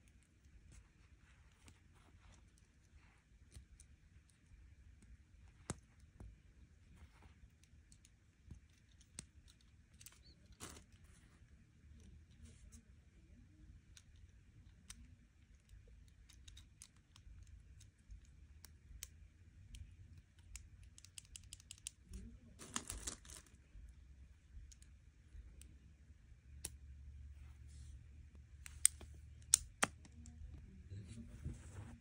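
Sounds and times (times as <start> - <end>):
plastic pieces clicking: 13.9 - 23.6.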